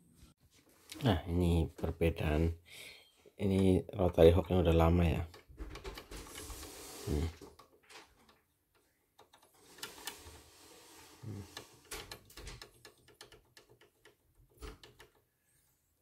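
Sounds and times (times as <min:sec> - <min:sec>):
rotary hook clicking and knocking: 0:07.4 - 0:10.4, 0:11.5 - 0:15.3.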